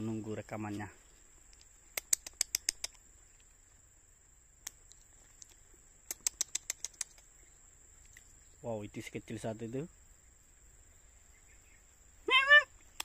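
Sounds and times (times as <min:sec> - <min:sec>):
sharp clicks: 0:01.5 - 0:03.0, 0:04.6 - 0:07.3
high-pitched insect drone: 0:05.7 - 0:13.0.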